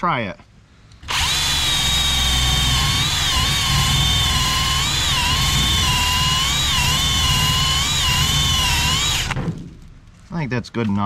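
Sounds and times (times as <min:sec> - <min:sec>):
drill wire brush on rusted steel: 0:01.0 - 0:09.4.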